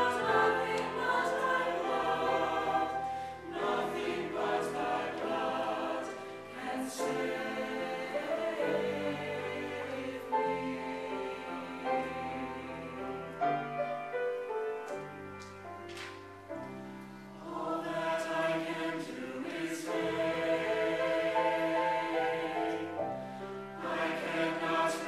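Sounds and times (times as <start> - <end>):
mixed choir singing a hymn: 0.0 - 13.7, 17.4 - 25.0.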